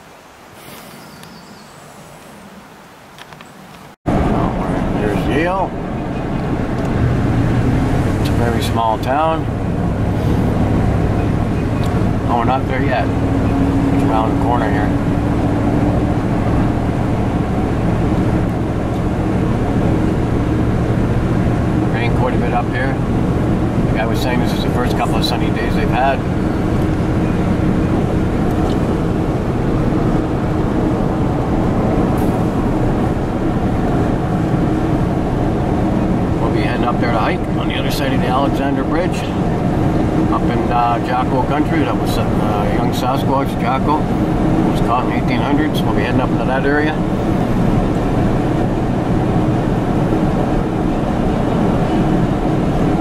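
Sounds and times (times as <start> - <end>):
vehicle road and engine noise: 0.0 - 53.0.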